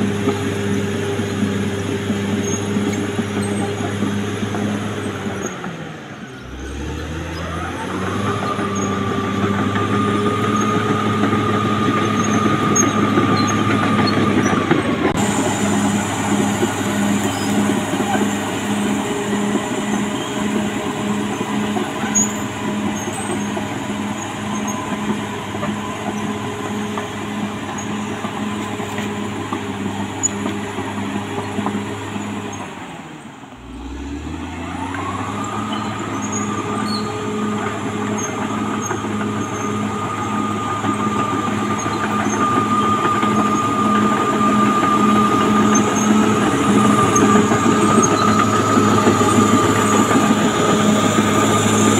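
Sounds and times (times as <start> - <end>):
steel tracks clanking and squealing: 0.0 - 33.5, 34.4 - 51.9
diesel engine running: 0.0 - 51.9.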